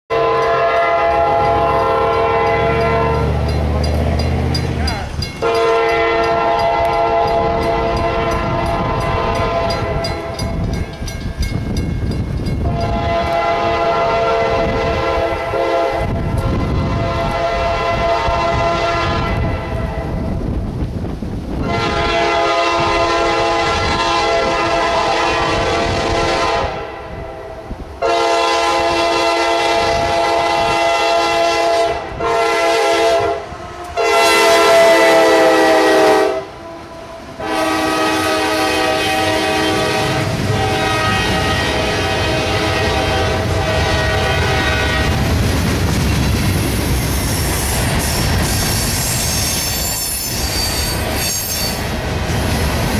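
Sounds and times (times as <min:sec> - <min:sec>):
locomotive air horn blasts: 0:00.1 - 0:03.5, 0:05.4 - 0:10.5, 0:12.6 - 0:20.2, 0:21.6 - 0:45.2
locomotive engine rumble: 0:00.4 - 0:18.2.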